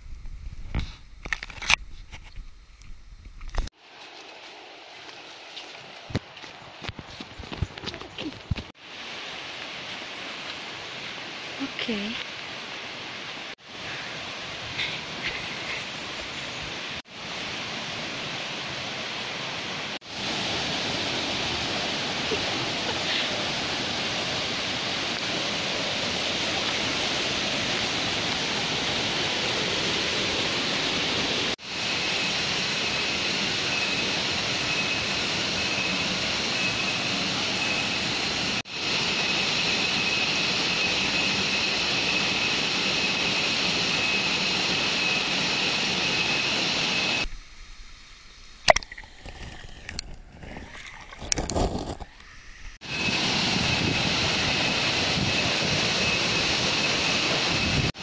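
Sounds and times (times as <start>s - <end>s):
waterfall roaring: 8.3s - 33.0s.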